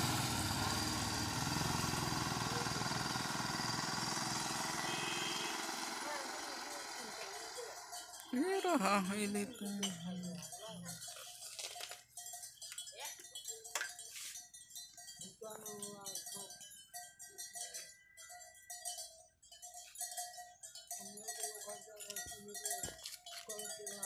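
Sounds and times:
elephant bell clanking: 0:00.0 - 0:24.0
faint voices: 0:05.9 - 0:11.1.

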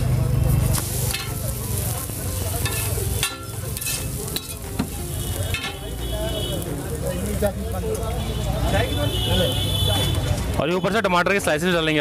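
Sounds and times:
omelette sizzling on a griddle: 0:00.0 - 0:09.1
metal spatula scraping griddle: 0:00.6 - 0:05.8.

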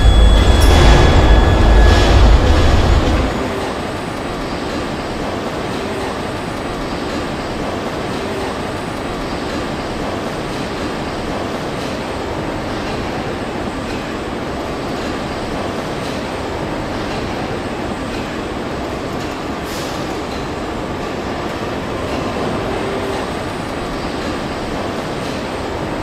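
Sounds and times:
assembly line machinery rumble: 0:00.0 - 0:09.2.

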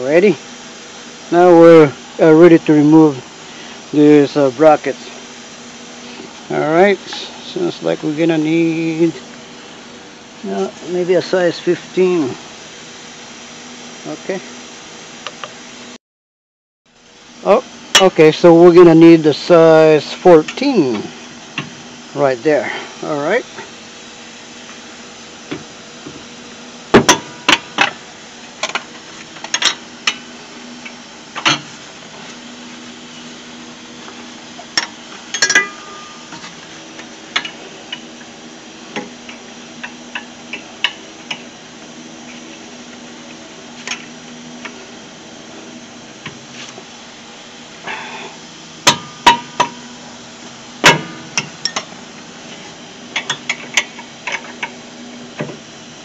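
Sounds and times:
wrench clinking against metal: 0:35.3 - 0:36.4.

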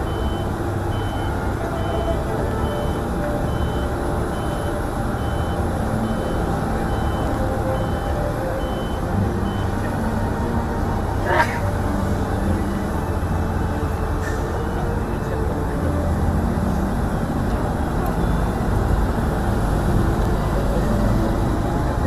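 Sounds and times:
reversing alarm beeping: 0:00.0 - 0:09.9
low background rumble and murmur: 0:00.0 - 0:22.0.

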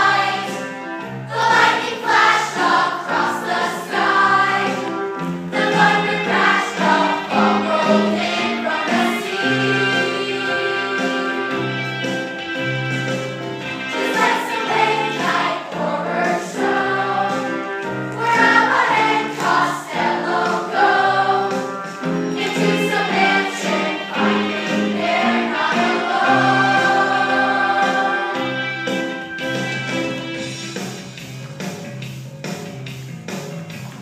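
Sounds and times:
choir singing over held chords: 0:00.0 - 0:12.2, 0:13.6 - 0:29.2.

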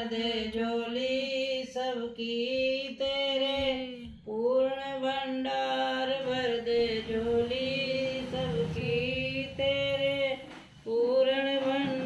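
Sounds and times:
woman chanting held notes: 0:06.1 - 0:12.0.

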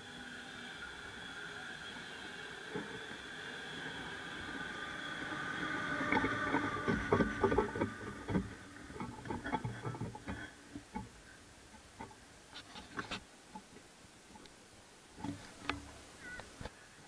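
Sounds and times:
train passing: 0:00.0 - 0:10.3
steady whine: 0:00.0 - 0:16.8
train wheels clicking and knocking: 0:01.9 - 0:11.1.

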